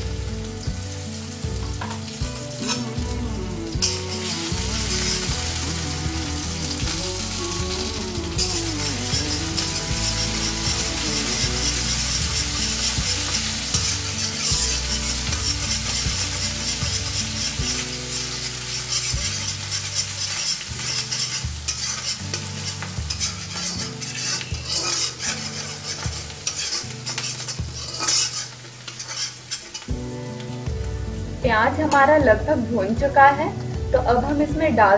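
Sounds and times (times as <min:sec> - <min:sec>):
onion sizzling in hot oil: 0:00.0 - 0:34.9
spatula scraping pan: 0:02.0 - 0:03.1, 0:03.8 - 0:30.0.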